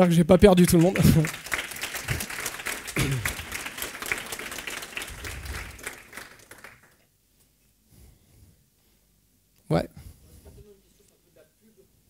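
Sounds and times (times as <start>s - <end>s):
audience applauding: 0.3s - 7.0s.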